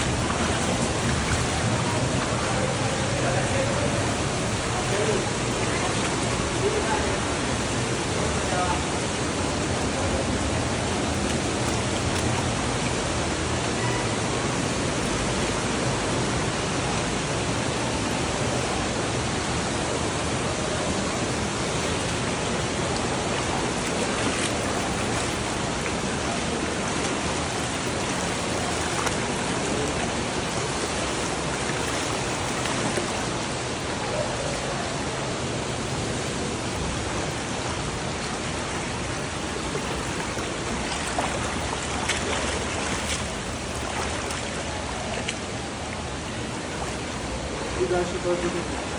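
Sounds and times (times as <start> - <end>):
splashes from wading: 0.0 - 7.6, 21.5 - 35.4, 36.4 - 47.6
stream rushing over rocks: 0.0 - 48.9.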